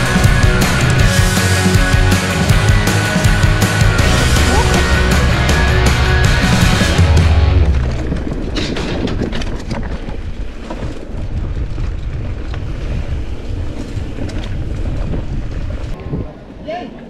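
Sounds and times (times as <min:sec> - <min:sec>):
background music: 0:00.0 - 0:08.0
bike tyres rumbling: 0:00.0 - 0:16.6
bike frame rattling: 0:07.6 - 0:16.0
wind on microphone: 0:07.6 - 0:16.9.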